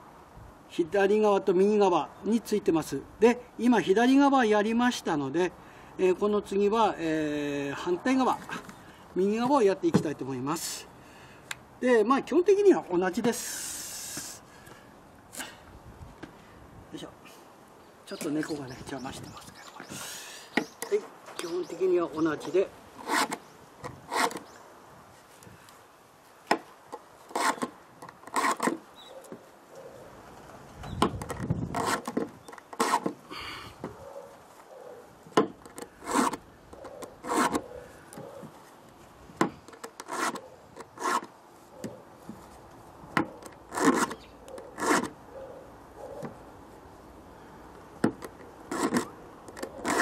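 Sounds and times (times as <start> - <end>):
file rasping on saw chain: 23.0 - 23.4, 24.1 - 24.4, 27.3 - 27.7, 28.3 - 28.7, 36.0 - 36.4, 37.2 - 37.6, 40.0 - 41.3, 43.7 - 44.2, 44.8 - 45.1, 48.7 - 50.0.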